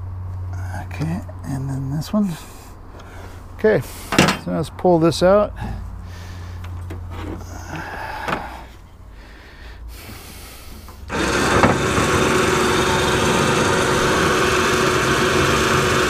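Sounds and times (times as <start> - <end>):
electric winch motor running: 11.1 - 16.0.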